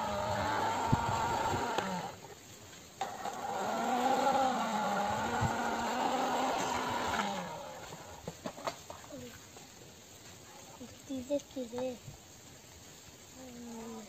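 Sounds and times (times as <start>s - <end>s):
engine-like drone: 0.0s - 2.3s, 3.0s - 8.3s.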